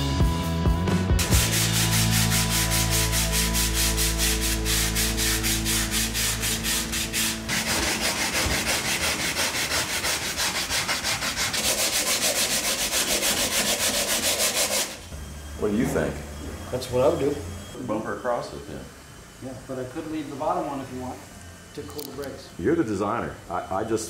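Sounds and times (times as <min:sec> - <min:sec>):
hand sanding strokes: 0:01.2 - 0:15.1.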